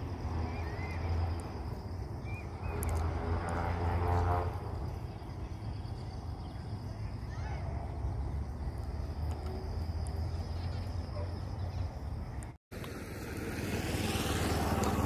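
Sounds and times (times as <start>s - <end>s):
high insect hum: 0.0s - 12.6s
drawn-out bird call: 2.2s - 8.4s.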